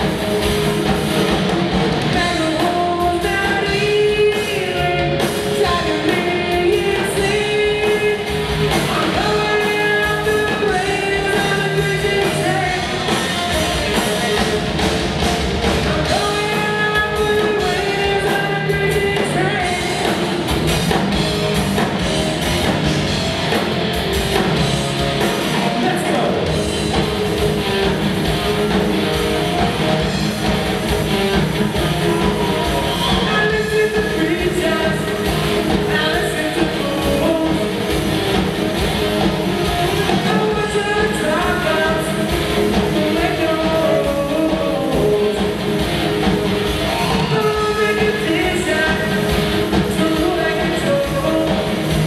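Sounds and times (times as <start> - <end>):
live rock band: 0.0 - 52.0
man singing into microphone: 2.2 - 8.3, 8.9 - 13.1, 15.9 - 20.2, 33.0 - 35.2, 35.8 - 37.8, 40.1 - 45.6, 47.1 - 51.8.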